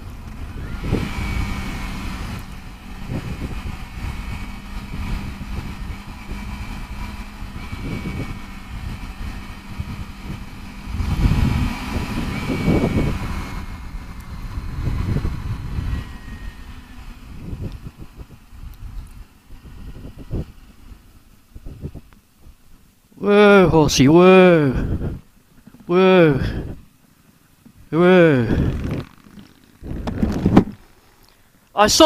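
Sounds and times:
wind noise on microphone: 0.0s - 22.8s, 24.7s - 25.3s, 26.4s - 26.9s, 28.3s - 30.9s
motorcycle engine running: 0.0s - 32.0s.

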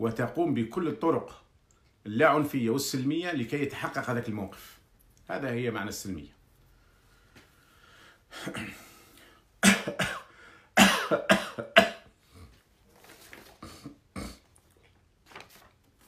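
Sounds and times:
man coughing: 8.4s - 9.0s, 9.6s - 12.6s, 13.6s - 14.5s.

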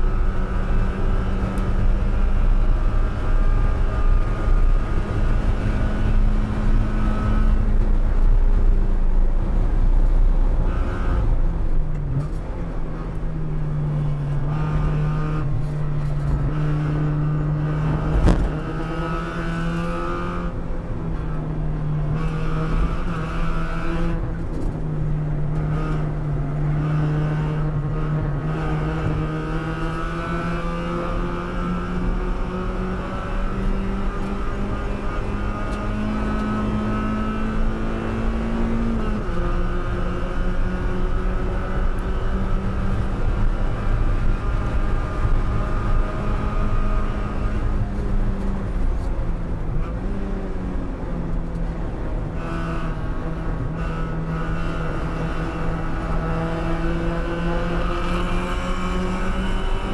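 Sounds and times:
tyre and wind noise: 0.0s - 19.4s.

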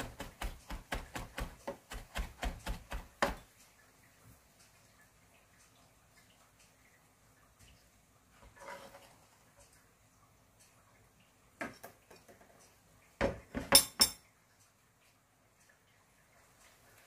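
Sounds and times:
dishes and utensils clattering: 13.2s - 14.3s.

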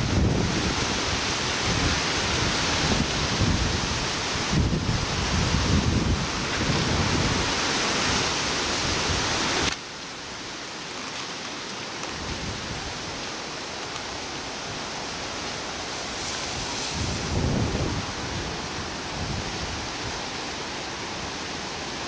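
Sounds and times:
wind buffeting microphone: 0.0s - 9.6s, 16.5s - 20.2s
outdoor hiss: 0.0s - 22.0s.

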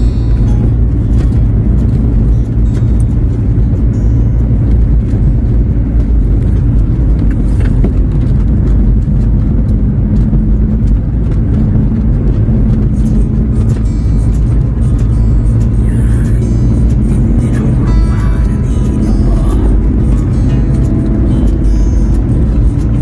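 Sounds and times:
music playing: 0.0s - 7.7s, 12.7s - 23.0s
vehicle engine and road noise: 0.0s - 23.0s.

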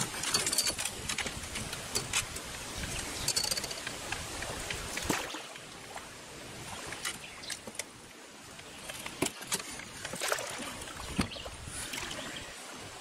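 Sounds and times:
paddle strokes splashing: 0.0s - 12.6s.

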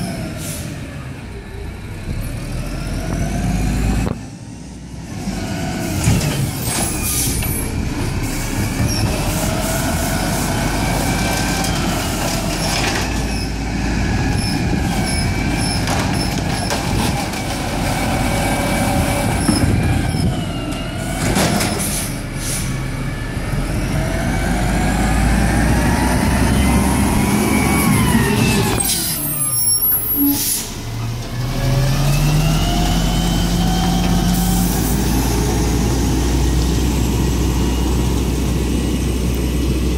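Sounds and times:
garbage truck diesel engine: 0.0s - 39.9s
air brake hiss: 21.8s - 22.8s, 30.2s - 30.8s.

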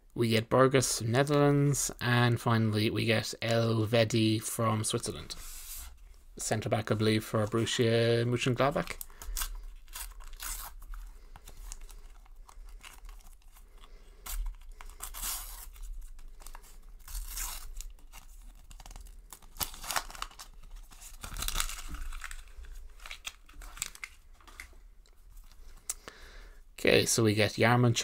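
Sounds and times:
foil wrapper tearing and crinkling: 8.9s - 24.6s.

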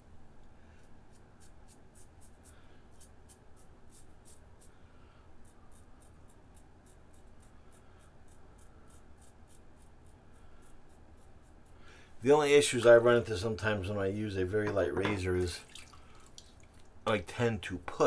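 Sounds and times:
razor scraping stubble: 5.4s - 11.8s.

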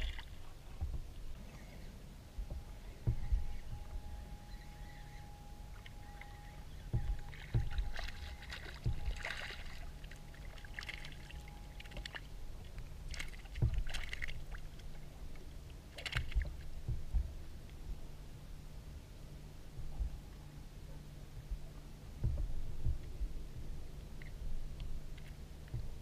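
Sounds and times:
hollow knocks against hull: 0.0s - 1.3s, 2.4s - 4.0s, 6.7s - 9.8s, 13.1s - 14.5s, 16.0s - 17.4s, 22.2s - 23.7s, 25.7s - 26.0s
small waves lapping and splashing: 0.0s - 18.2s.

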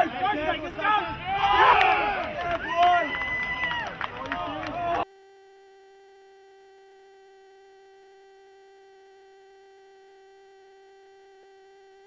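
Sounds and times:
faint steady electronic tone: 2.6s - 12.0s.

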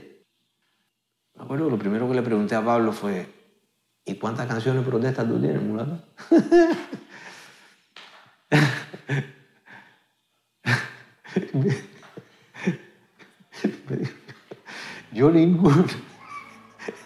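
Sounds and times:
breathy laughter: 6.2s - 7.6s, 8.5s - 10.0s, 10.6s - 15.1s, 15.7s - 17.0s.

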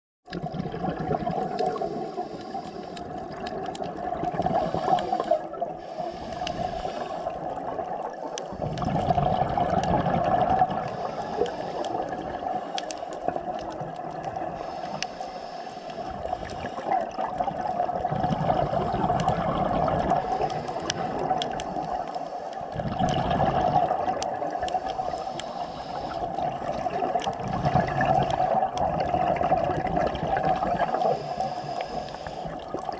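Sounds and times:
underwater water noise: 0.2s - 32.9s
faint clicks: 1.5s - 5.4s, 6.0s - 7.3s, 8.1s - 9.1s, 9.7s - 17.5s, 18.6s - 29.1s.

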